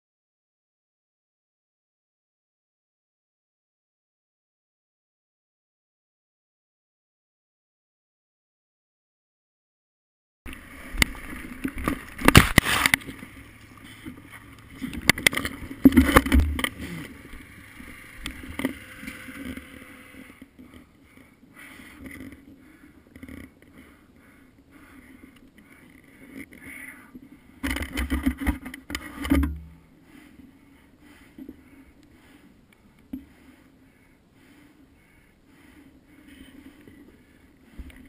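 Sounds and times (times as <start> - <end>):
faint steady hum: 10.5 - 38.0.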